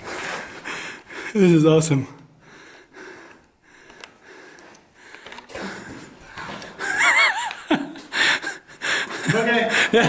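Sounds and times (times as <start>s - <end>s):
breathy noise: 2.2s - 7.0s
person laughing: 6.7s - 10.0s.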